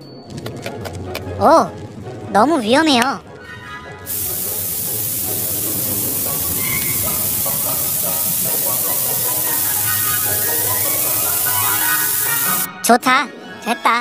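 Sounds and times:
fire extinguisher spraying: 4.1s - 12.7s.

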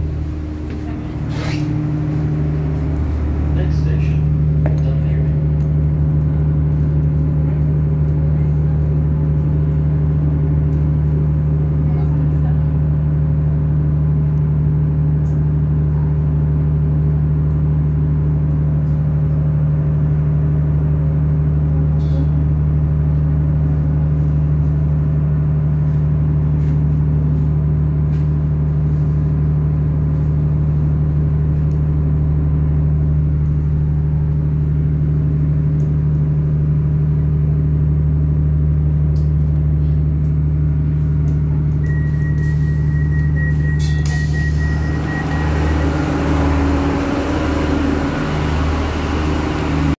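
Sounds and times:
train diesel engine drone: 0.0s - 49.9s
high beeping: 41.8s - 47.0s.

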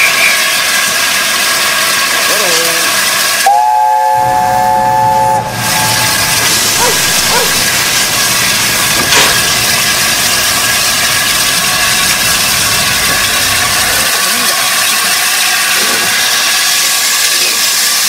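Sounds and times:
loud hiss of escaping steam: 0.0s - 18.0s
three-note chime whistle: 3.5s - 6.2s.

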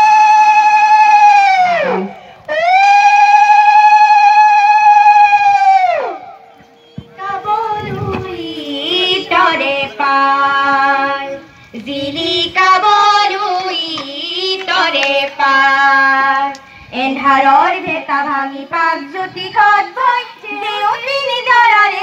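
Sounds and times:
children and women singing: 7.0s - 22.0s.

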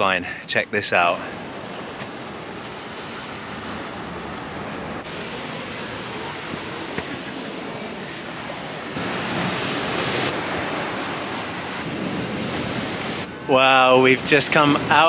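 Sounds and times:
surf breaking on rocks: 5.0s - 15.0s.

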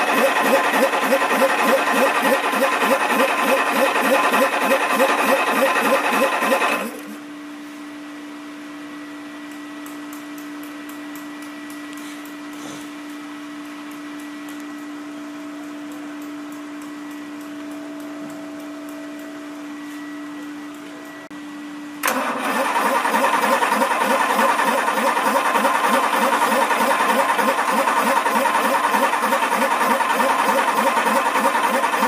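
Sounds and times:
diesel engine cranking: 0.0s - 7.1s, 22.0s - 32.0s
steady machine hum: 0.0s - 32.0s.

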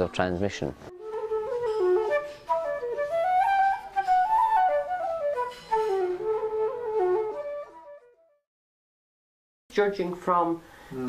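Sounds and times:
wooden flute melody: 0.9s - 8.5s.

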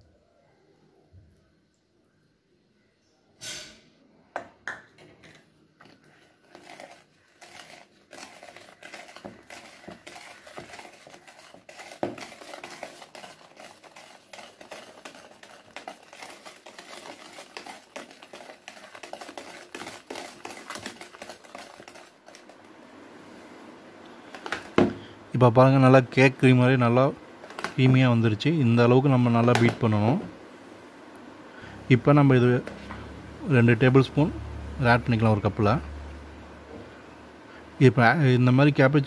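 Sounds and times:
whisk tapping against plastic bowl: 7.5s - 22.0s.

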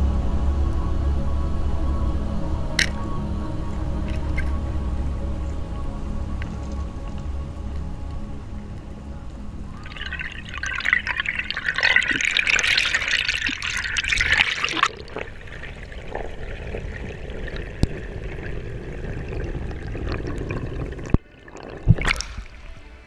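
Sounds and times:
water rushing steadily: 0.0s - 23.0s
water splashing and bubbling: 9.6s - 23.0s.

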